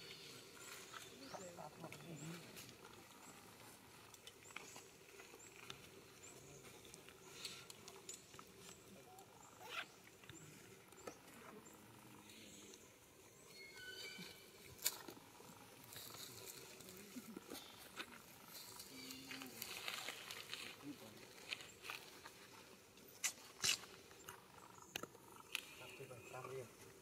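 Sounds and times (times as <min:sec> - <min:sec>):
faint high chirps: 0:06.2 - 0:14.9.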